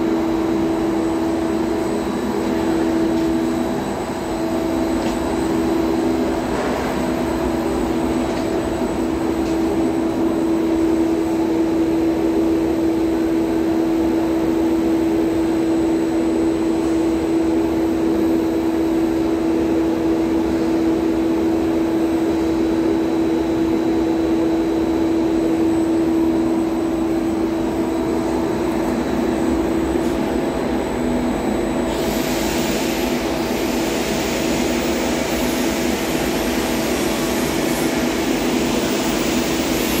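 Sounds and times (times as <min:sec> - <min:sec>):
blower humming with air rush: 0:00.0 - 0:40.0
airy hiss: 0:31.9 - 0:40.0.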